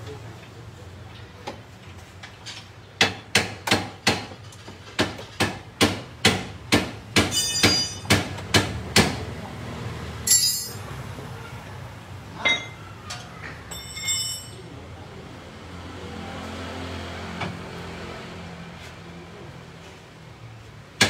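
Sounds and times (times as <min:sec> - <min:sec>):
ringing metallic clank: 0:07.3 - 0:08.1, 0:10.3 - 0:10.8, 0:12.4 - 0:12.8, 0:13.7 - 0:14.7.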